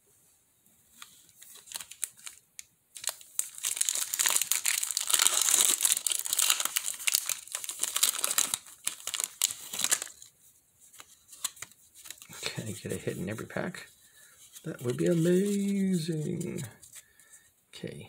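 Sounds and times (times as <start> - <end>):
foil wrapper tearing and crinkling: 1.4 - 10.3.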